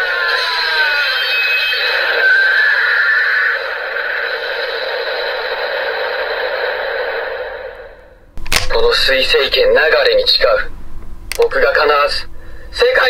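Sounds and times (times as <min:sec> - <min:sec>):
toy sword electronic sound effect: 0:00.0 - 0:07.8.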